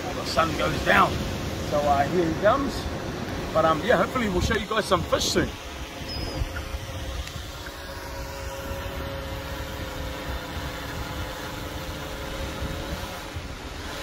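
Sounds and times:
drone propellers humming: 0.0s - 14.0s
wind rumbling on microphone: 0.0s - 14.0s.

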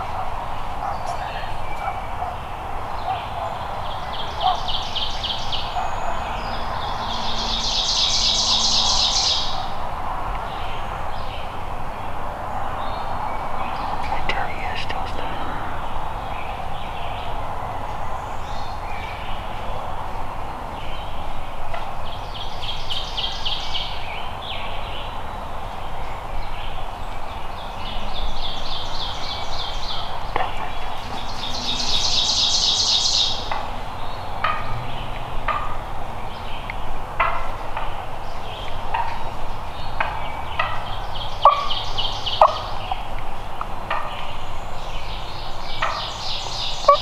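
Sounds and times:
steady background hiss: 0.0s - 47.0s
turkey gobbling: 35.5s - 35.8s, 41.4s - 41.8s.

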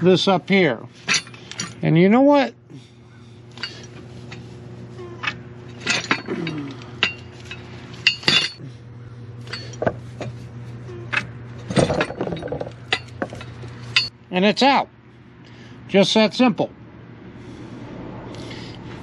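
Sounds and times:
steady low hum: 0.0s - 19.0s
metal parts clinking and knocking: 1.0s - 2.0s, 3.5s - 8.6s, 9.4s - 10.4s, 11.0s - 14.1s.

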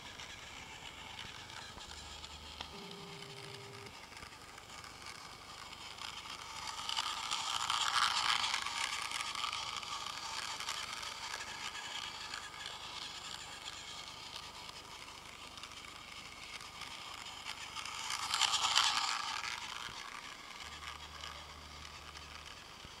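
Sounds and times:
toy train motor whirring: 0.0s - 23.0s
wheels on plastic track: 0.0s - 23.0s
low hum: 1.8s - 4.1s.

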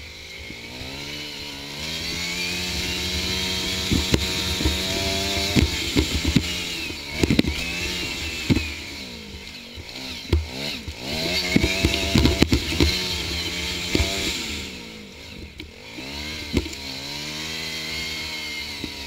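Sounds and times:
small engine running hard: 0.0s - 19.0s
vehicle knocks and rattles: 9.8s - 13.2s.

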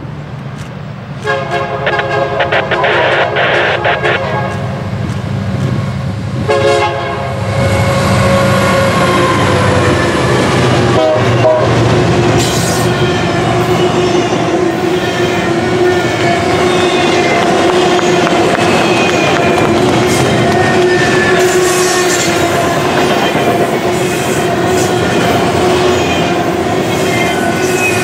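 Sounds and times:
diesel locomotive engine rumbling: 0.0s - 28.0s
locomotive horn: 1.2s - 4.8s, 6.4s - 9.8s, 10.8s - 11.8s, 13.2s - 23.0s
train wheels clicking over rail joints: 4.4s - 6.1s, 16.1s - 28.0s.

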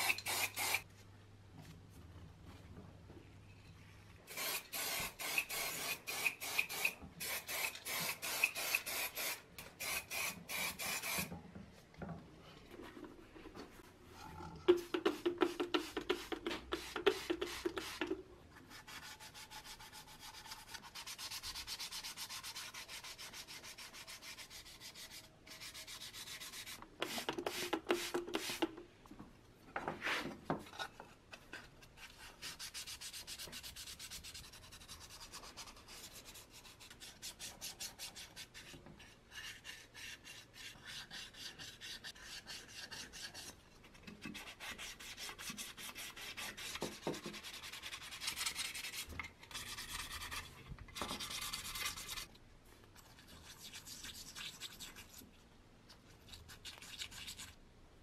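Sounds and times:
sandpaper scraping metal: 0.0s - 0.8s.

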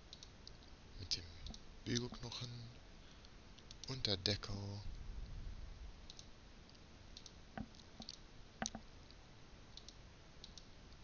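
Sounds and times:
computer mouse clicks: 0.0s - 2.2s, 3.6s - 4.0s, 6.0s - 11.0s.

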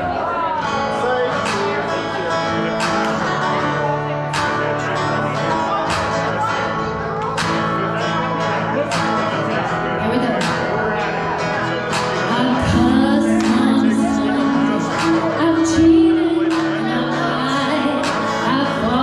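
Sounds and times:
live band playing: 0.7s - 19.0s
person singing: 11.9s - 19.0s.

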